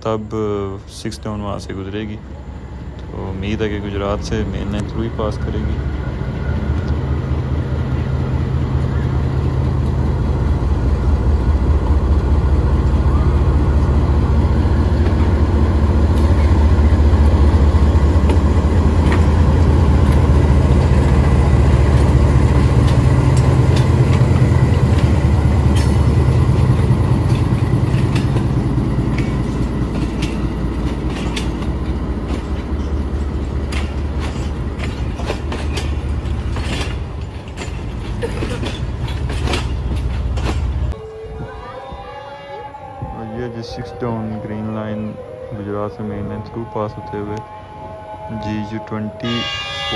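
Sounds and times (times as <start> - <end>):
diesel locomotive engine throbbing: 0.0 - 41.6, 42.6 - 49.9
train wheels clacking over rail joints: 16.0 - 41.0.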